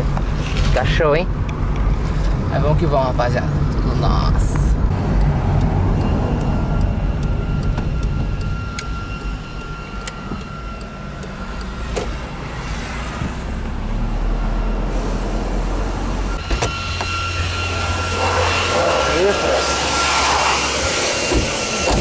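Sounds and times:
car engine and road rumble: 0:00.0 - 0:22.0
car door opening: 0:21.0 - 0:22.0.

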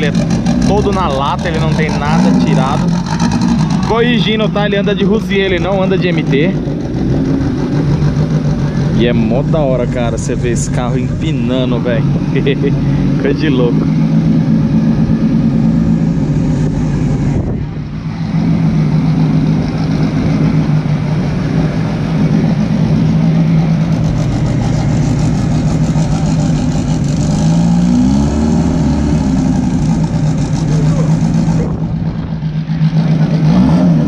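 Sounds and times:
car engine running at low revs: 0:00.0 - 0:34.0.

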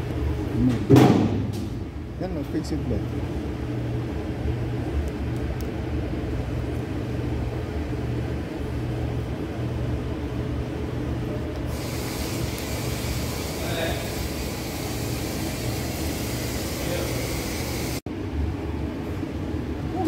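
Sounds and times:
low machine hum: 0:00.0 - 0:20.0
hiss: 0:11.7 - 0:18.0.

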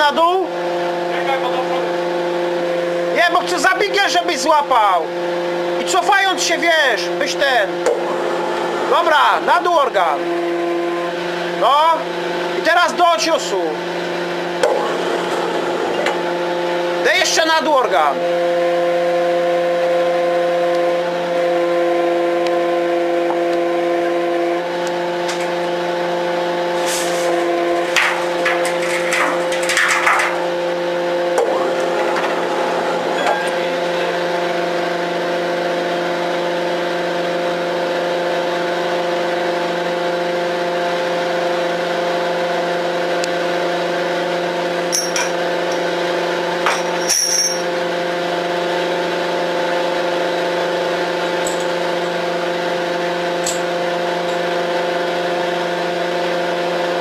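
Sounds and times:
tunnelling machine humming: 0:00.0 - 0:57.0
scraping and knocking: 0:26.8 - 0:30.7, 0:31.4 - 0:33.0.

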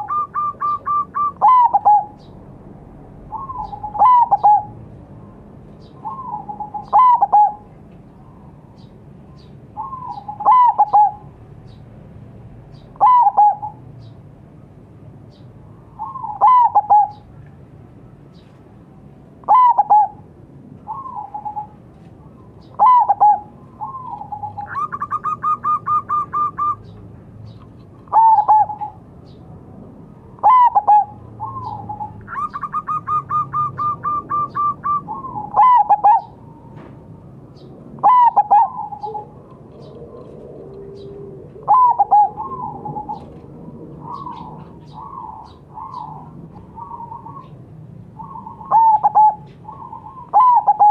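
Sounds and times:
dove cooing: 0:00.0 - 0:02.3, 0:03.3 - 0:04.8, 0:05.9 - 0:07.7, 0:09.8 - 0:11.4, 0:12.8 - 0:13.8, 0:16.0 - 0:17.3, 0:19.4 - 0:21.8, 0:22.6 - 0:27.0, 0:28.0 - 0:29.0, 0:30.4 - 0:36.9, 0:38.0 - 0:47.6, 0:48.2 - 0:50.9.

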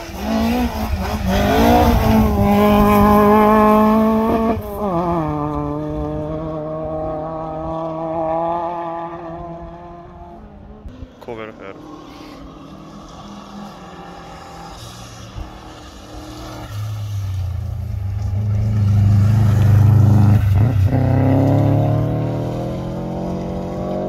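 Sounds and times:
rally car engine accelerating: 0:00.0 - 0:24.0.

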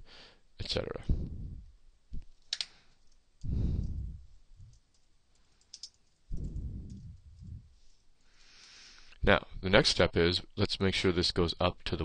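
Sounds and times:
dull low thumps: 0:01.0 - 0:02.2, 0:03.4 - 0:04.8, 0:06.3 - 0:07.8.

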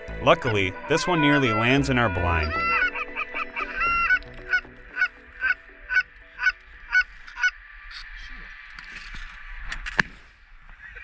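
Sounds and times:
goose honking: 0:00.3 - 0:07.6.

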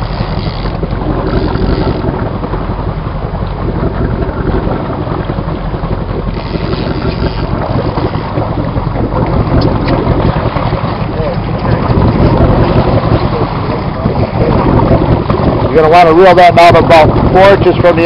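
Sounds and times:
boat engine drone: 0:00.0 - 0:18.0
wind rumble on microphone: 0:00.0 - 0:18.0.

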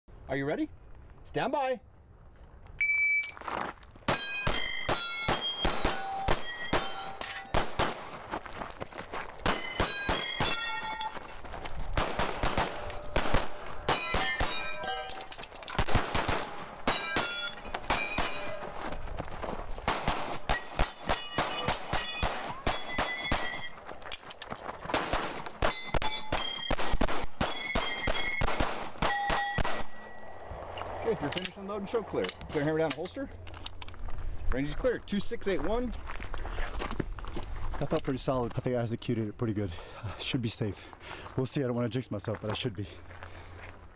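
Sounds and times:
steel targets ringing: 0:04.1 - 0:07.6, 0:09.4 - 0:11.4, 0:12.7 - 0:15.5, 0:16.8 - 0:18.9, 0:20.5 - 0:23.9, 0:25.6 - 0:30.4
rapid pistol fire: 0:12.0 - 0:14.4, 0:15.8 - 0:17.1, 0:19.9 - 0:20.4, 0:26.7 - 0:29.9.

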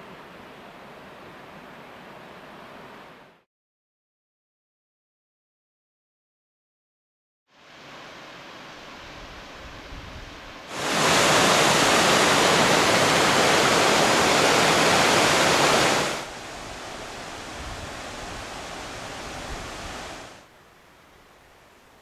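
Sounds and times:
water rushing over boulders: 0:10.7 - 0:20.5.

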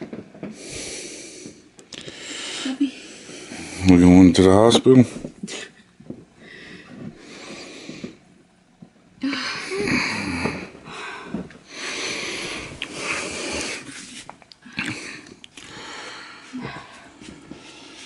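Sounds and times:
woman breathing heavily: 0:00.4 - 0:03.9, 0:06.4 - 0:08.3, 0:09.2 - 0:18.0
woman moaning low: 0:09.2 - 0:11.4.

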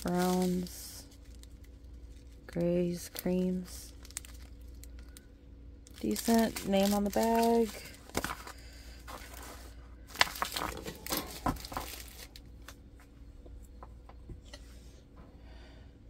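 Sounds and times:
plastic film rustling and crinkling: 0:00.0 - 0:12.8.

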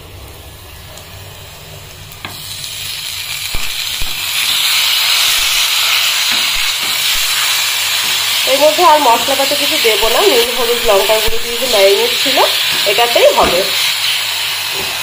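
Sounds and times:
chicken sizzling in hot oil: 0:00.0 - 0:15.0
spatula knocking pan: 0:12.7 - 0:13.8.

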